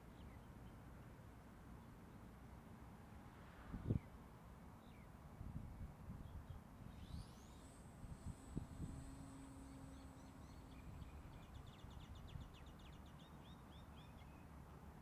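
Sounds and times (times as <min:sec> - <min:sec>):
small bird chirping: 0:06.2 - 0:14.5.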